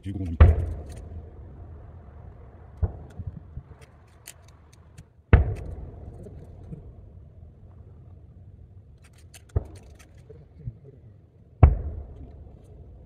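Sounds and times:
low rumble: 0:00.0 - 0:09.0
distant firework booms: 0:00.4 - 0:03.8, 0:05.3 - 0:07.1, 0:11.6 - 0:13.0.

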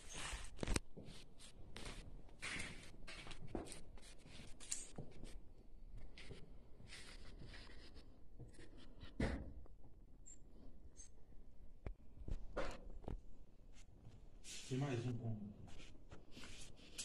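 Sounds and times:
thump: 0:09.2 - 0:09.6.

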